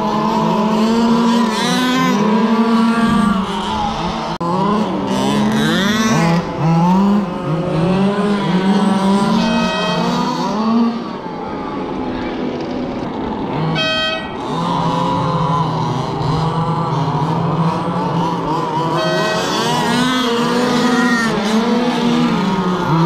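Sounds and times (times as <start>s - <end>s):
rc car motors revving: 0.0s - 23.0s
horn-like tone: 9.1s - 10.8s, 13.7s - 14.4s, 18.8s - 20.2s.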